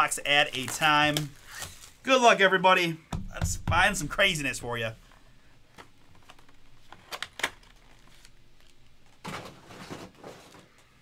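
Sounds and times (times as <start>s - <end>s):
foil pack rustling: 0.0s - 2.1s, 5.8s - 10.8s.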